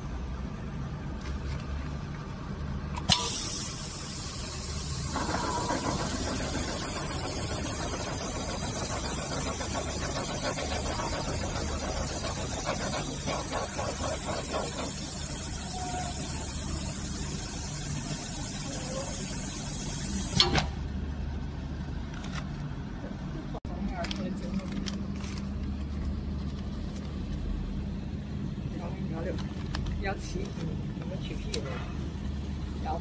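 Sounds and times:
sharp machine click: 0:03.0 - 0:10.2
hiss: 0:03.1 - 0:20.4
machine hum: 0:04.0 - 0:18.4.

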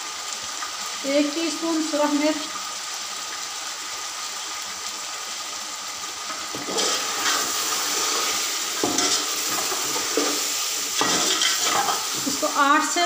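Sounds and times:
food sizzling in oil: 0:00.0 - 0:13.0
spatula scraping a pot: 0:06.6 - 0:12.4.

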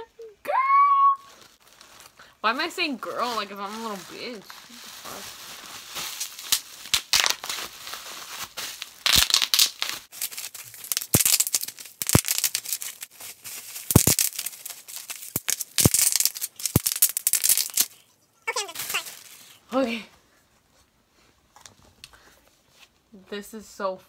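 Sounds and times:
bubble wrap crinkling and tearing: 0:01.2 - 0:19.8.

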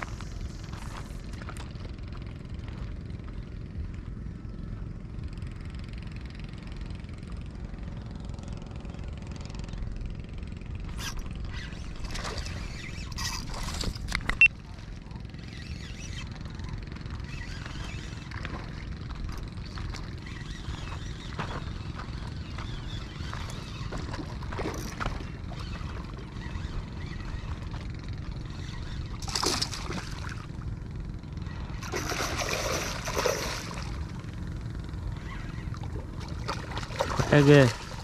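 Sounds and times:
fish splashing and thrashing in water: 0:11.6 - 0:14.4, 0:22.9 - 0:30.6, 0:31.6 - 0:34.3, 0:35.5 - 0:38.0.

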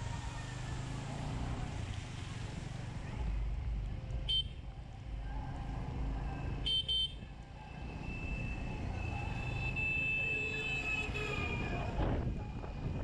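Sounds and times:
vehicle horn toots: 0:06.7 - 0:07.2.

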